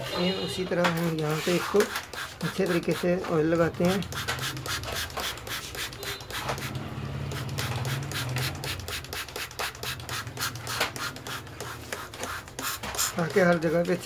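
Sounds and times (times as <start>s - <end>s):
plastic bottle scraping metal: 0.8s - 6.8s, 7.4s - 14.0s.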